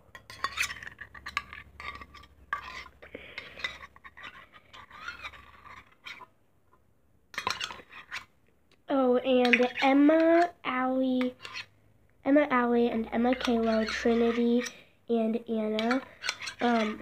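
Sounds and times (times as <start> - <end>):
metal spoon scraping a metal cup: 0.1 - 6.3, 7.3 - 8.3, 9.4 - 10.5, 11.2 - 11.7, 13.0 - 14.8, 15.8 - 17.0.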